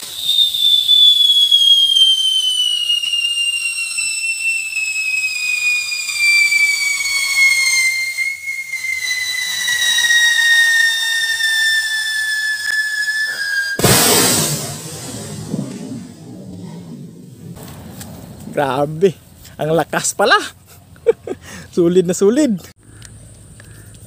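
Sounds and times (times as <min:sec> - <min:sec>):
long falling whistle: 0:00.0 - 0:17.6.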